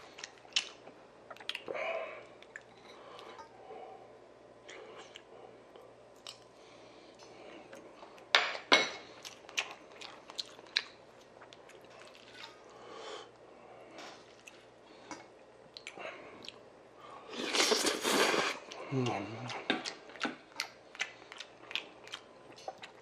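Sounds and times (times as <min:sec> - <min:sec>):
wet chewing and smacking: 0:00.0 - 0:01.7, 0:09.2 - 0:12.7, 0:18.6 - 0:23.0.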